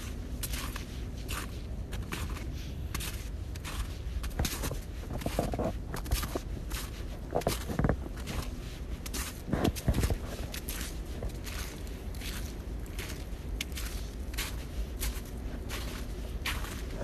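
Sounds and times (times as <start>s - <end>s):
footsteps on forest floor: 0.0s - 17.0s
steady low rumble: 0.0s - 17.0s.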